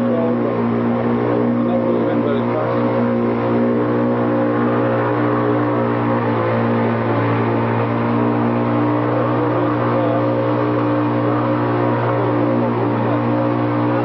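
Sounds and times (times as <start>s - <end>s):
boat motor droning: 0.0s - 14.0s.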